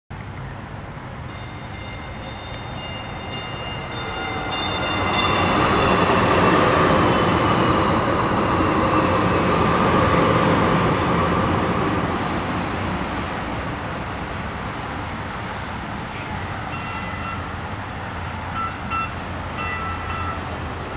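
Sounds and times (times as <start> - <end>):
train cars rumbling: 0.9 - 20.9
train bell dinging: 1.2 - 11.3, 16.2 - 17.8, 18.4 - 20.5.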